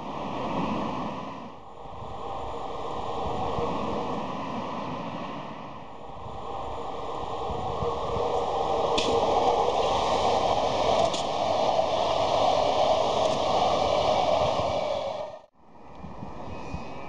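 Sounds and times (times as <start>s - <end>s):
train rushing on rails: 0.0s - 15.5s.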